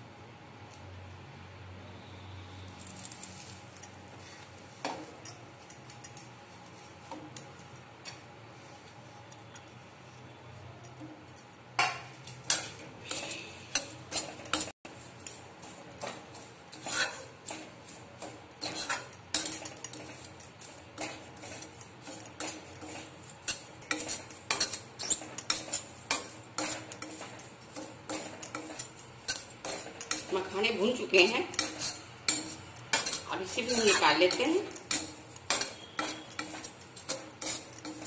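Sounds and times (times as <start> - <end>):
metal spatula scraping a pan: 12.4 - 38.0.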